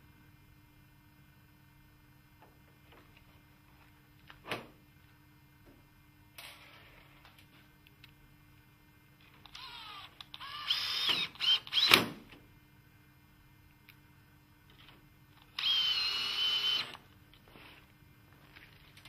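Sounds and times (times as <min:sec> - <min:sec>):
cordless drill motor whining: 0:09.5 - 0:12.0, 0:15.5 - 0:17.0.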